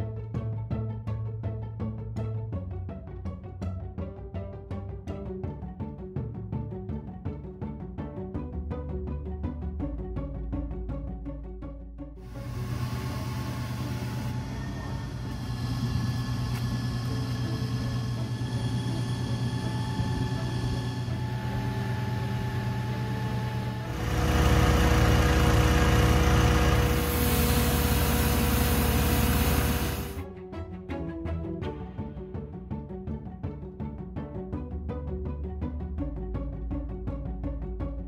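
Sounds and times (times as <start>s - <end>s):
drilling rig engine running: 12.2s - 30.2s
water gushing hiss: 26.9s - 30.0s.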